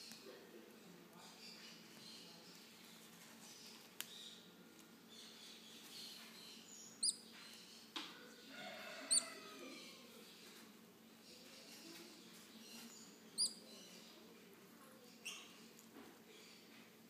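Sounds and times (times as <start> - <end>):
sharp high bird chirps: 6.8 - 7.3, 13.3 - 13.6
faint sliding bird calls: 12.8 - 13.6.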